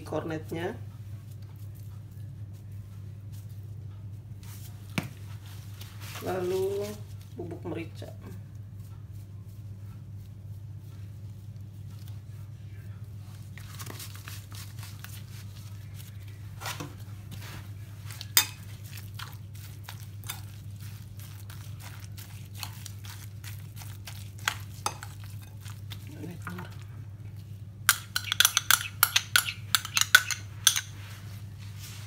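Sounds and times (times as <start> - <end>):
low steady hum: 0.0 - 32.0
spoon mashing wet filling: 18.0 - 31.2
spoon clinking against bowl: 18.4 - 18.7, 27.9 - 31.0.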